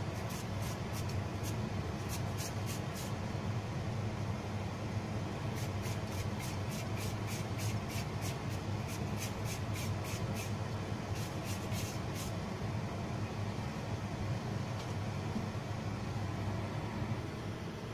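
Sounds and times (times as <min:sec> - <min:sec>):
steady low hum: 0:00.0 - 0:17.9
peeler scraping carrot: 0:00.2 - 0:03.1, 0:05.5 - 0:12.3.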